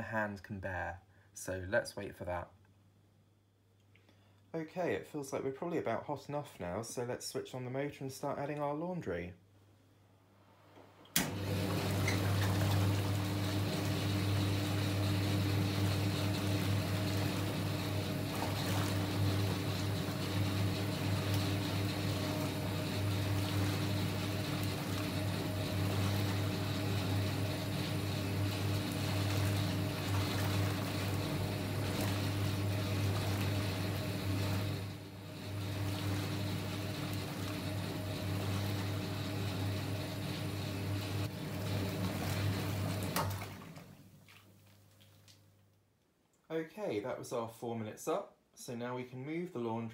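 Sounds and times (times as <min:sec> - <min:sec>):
washing machine motor hum: 0:10.4 - 0:45.1
water churning and sloshing: 0:11.4 - 0:45.4.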